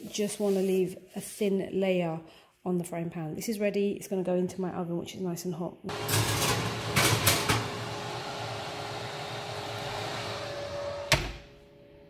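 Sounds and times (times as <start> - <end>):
oven door shutting: 5.9 - 11.7
oven fan humming: 5.9 - 12.0.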